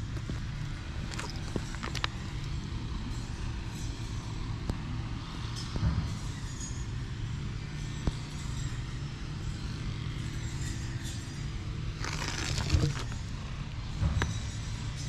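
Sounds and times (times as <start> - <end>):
hand rustling cat fur: 12.0 - 13.2.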